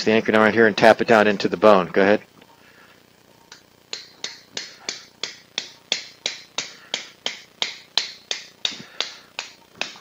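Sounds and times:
mallet tapping metal: 0:03.5 - 0:10.0.

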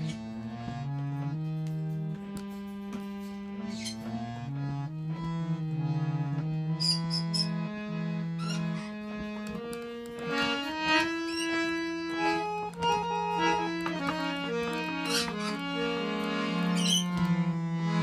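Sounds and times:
harmonium playing chords: 0:00.0 - 0:18.0
short high squeaks: 0:06.8 - 0:07.6, 0:11.3 - 0:11.6, 0:16.8 - 0:17.1.

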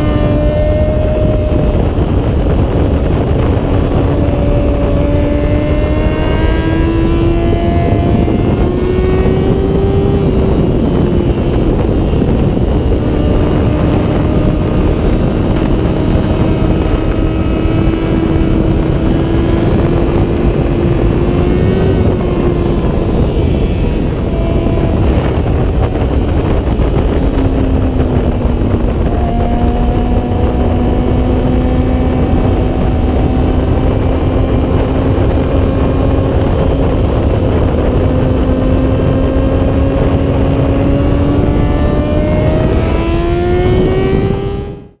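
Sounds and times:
motorcycle engine running: 0:00.0 - 0:45.0
wind rushing over microphone: 0:00.0 - 0:45.0.

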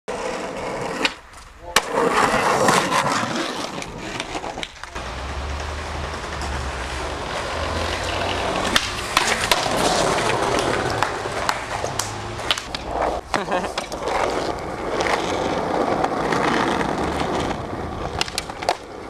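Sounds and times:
skateboard clacking on ground: 0:00.1 - 0:19.0
skateboard wheels rolling on pavement: 0:00.1 - 0:19.0.

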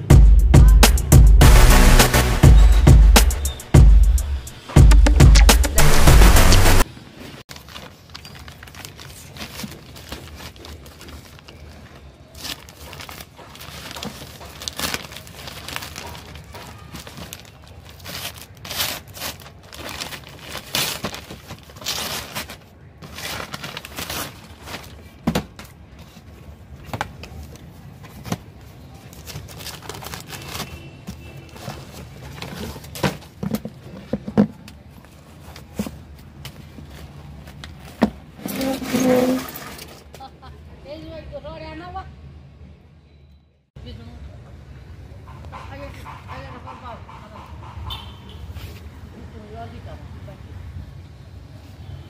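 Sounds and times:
loud music: 0:00.0 - 0:06.8
tissue paper rustling: 0:07.1 - 0:25.2, 0:27.4 - 0:33.3
paper mailing bag ripping: 0:07.4 - 0:25.2, 0:29.1 - 0:30.9.

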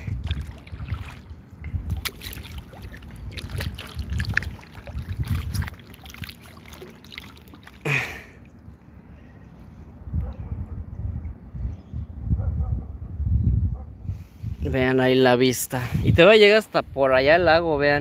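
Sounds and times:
kayak paddle strokes in water: 0:00.0 - 0:07.9
water trickling off paddle: 0:00.0 - 0:08.6.

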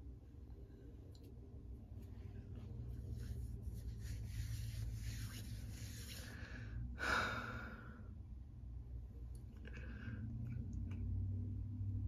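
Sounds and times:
low steady hum: 0:00.0 - 0:12.0
person breathing: 0:04.2 - 0:08.3, 0:09.6 - 0:10.4.

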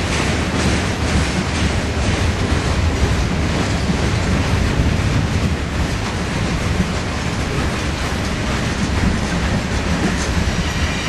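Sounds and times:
train wheels rumbling on rails: 0:00.0 - 0:11.0.

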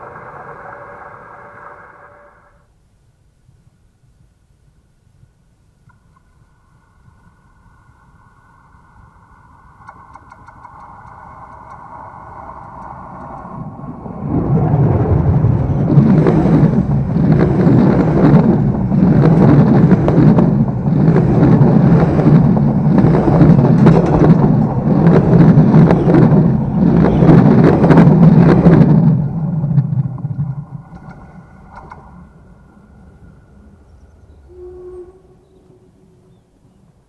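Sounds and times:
train wheels rumbling on rails: 0:09.8 - 0:37.0
rhythmic wheel clatter: 0:16.0 - 0:29.9.

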